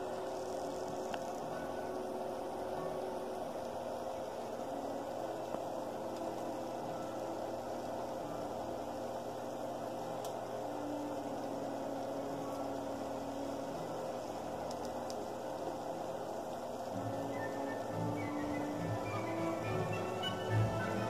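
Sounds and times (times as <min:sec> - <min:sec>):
pizza oven humming: 0:00.0 - 0:21.0
faint ticks: 0:00.5 - 0:01.6, 0:14.6 - 0:15.8.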